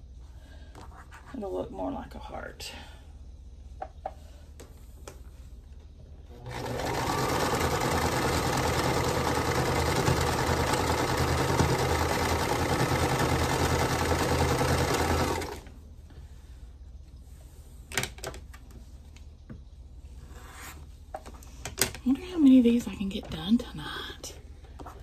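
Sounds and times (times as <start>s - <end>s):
sewing machine stitching: 6.4s - 15.7s.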